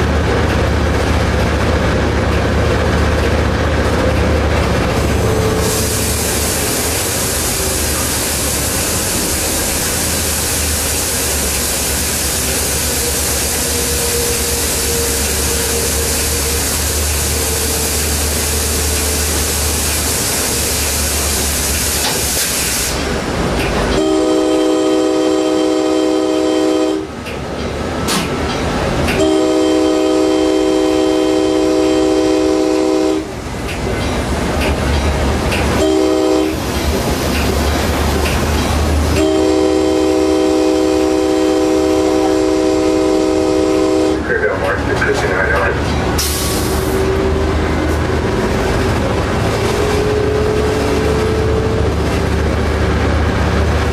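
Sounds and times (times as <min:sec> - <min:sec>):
low diesel engine drone: 0:00.0 - 0:53.9
train rushing noise: 0:00.0 - 0:53.9
locomotive air horn blasts: 0:24.0 - 0:27.2, 0:29.2 - 0:33.3, 0:35.8 - 0:36.6, 0:39.1 - 0:44.8.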